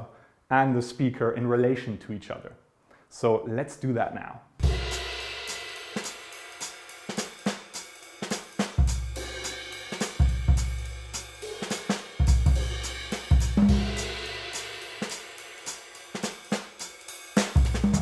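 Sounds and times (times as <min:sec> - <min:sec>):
drum kit beat: 0:04.6 - 0:18.0.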